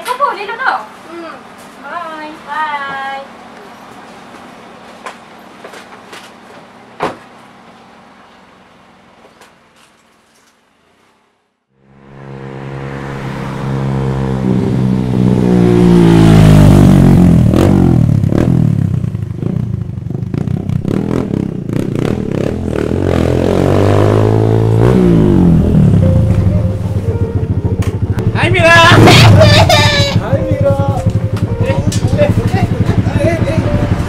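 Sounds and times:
small motorcycle engine revving: 11.8 - 26.0, 28.7 - 34.0.

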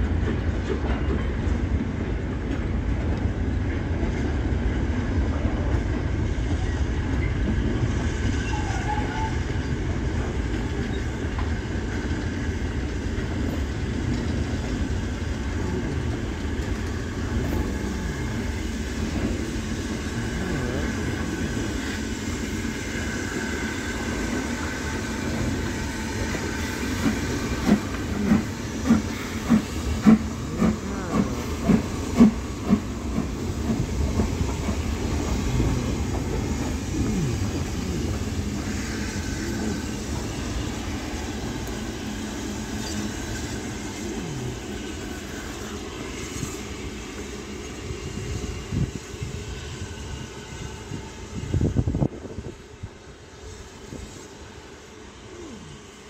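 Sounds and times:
train wheel clacks: 0.0 - 43.7
steam train rumble and hiss: 0.0 - 56.0.

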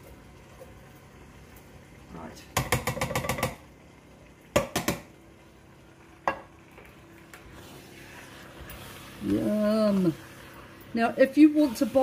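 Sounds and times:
faint sizzle: 0.0 - 12.0
can knocking against metal pot: 2.6 - 3.7, 4.5 - 5.1.

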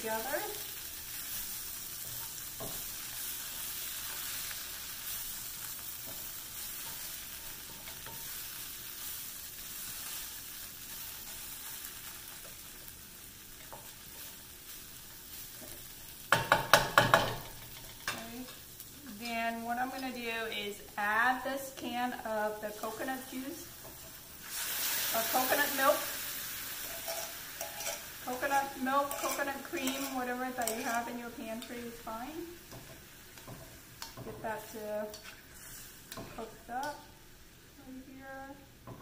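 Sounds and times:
tofu sizzling in oil: 0.0 - 39.0
wooden spatula stirring: 26.8 - 31.1.

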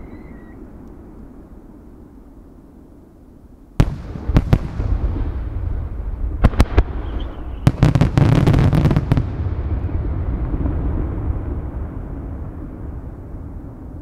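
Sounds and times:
firework cracks: 3.8 - 11.8
rolling rumble of echoes: 3.8 - 14.0.

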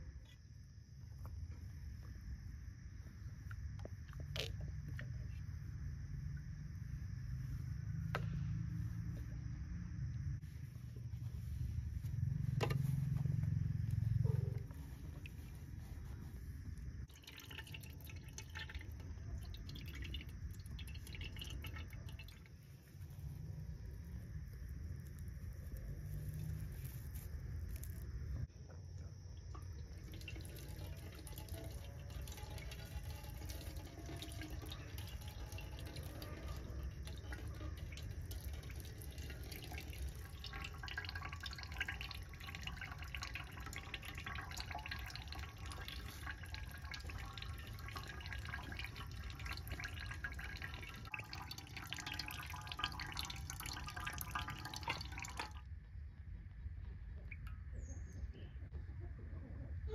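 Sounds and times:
liquid splashing into a vessel: 16.4 - 23.9, 29.2 - 55.6.

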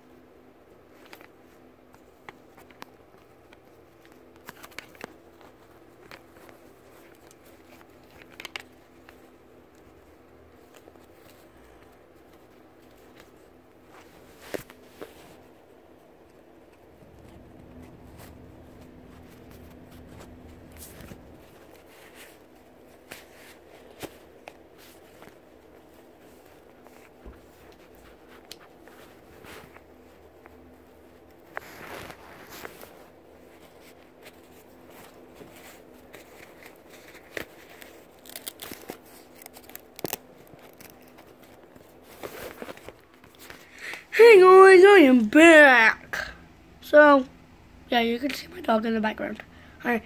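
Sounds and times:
low steady hum: 0.0 - 50.0
faint rustling: 0.9 - 44.1.

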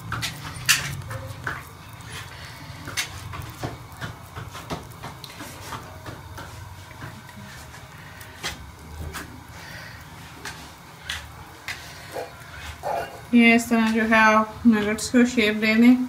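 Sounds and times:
wet clicks of hands shaping mixture: 0.0 - 12.4.

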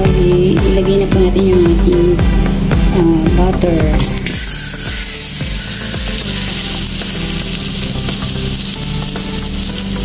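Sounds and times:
butter sizzling in a wok: 4.0 - 10.0.

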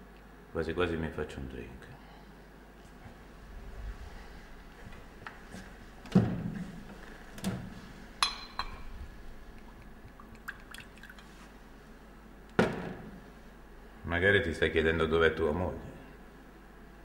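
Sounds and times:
glass chinking on glass: 8.2 - 8.9
liquid dripping: 8.2 - 11.5.

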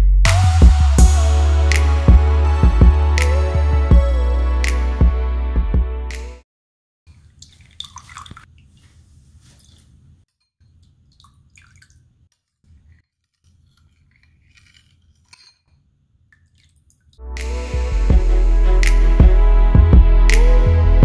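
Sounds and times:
spoon stirring oil: 12.8 - 16.8.

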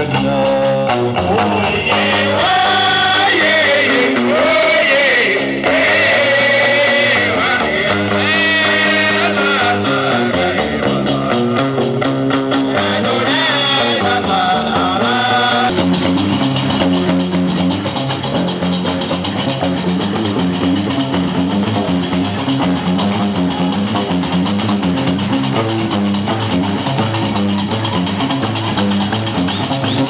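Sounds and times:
man singing: 0.0 - 5.7, 6.3 - 11.7, 12.6 - 15.7
plucked bass lute: 0.0 - 30.0.

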